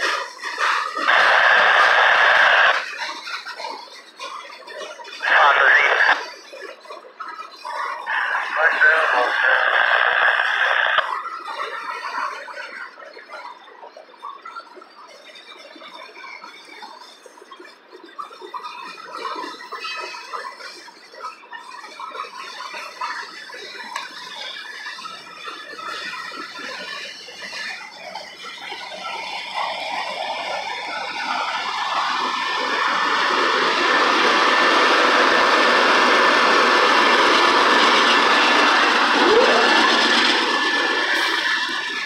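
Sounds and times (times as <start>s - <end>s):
freight cars rolling on rails: 0.0s - 42.0s
diesel locomotive passing: 7.8s - 9.8s, 28.0s - 42.0s.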